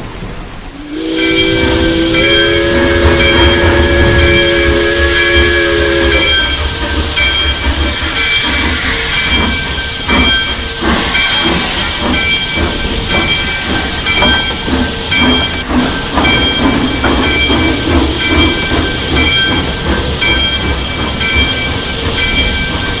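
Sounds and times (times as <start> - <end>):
steam hissing blasts: 0.0 - 19.6
steam whistle chord: 0.7 - 6.7
steam engine rhythmic beats: 0.7 - 23.0.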